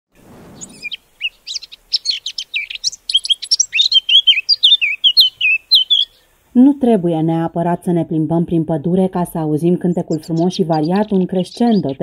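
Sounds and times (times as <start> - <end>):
bird singing warble: 0.3 - 6.3, 9.6 - 12.0.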